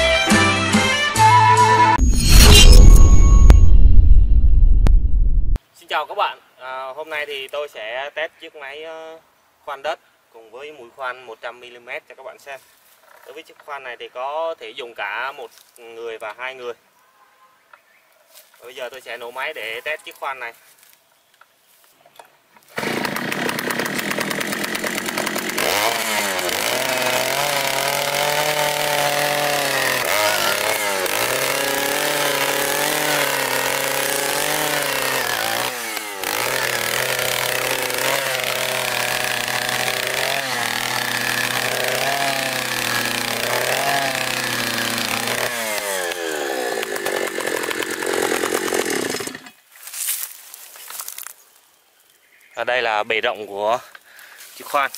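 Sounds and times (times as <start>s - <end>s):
earth auger engine drilling soil: 22.8s - 49.6s.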